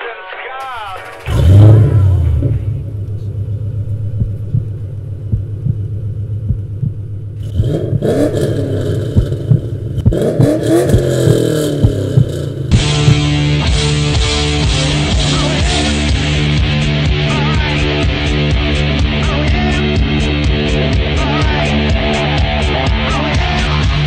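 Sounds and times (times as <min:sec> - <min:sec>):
exhaust pops: 0:00.6 - 0:13.6
car engine idling and revving: 0:00.6 - 0:24.0.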